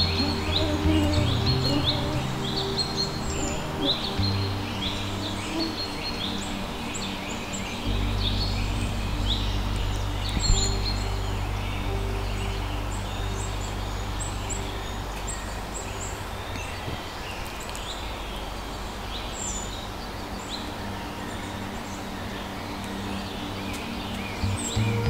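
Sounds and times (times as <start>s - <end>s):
low background rumble: 0.0s - 16.8s.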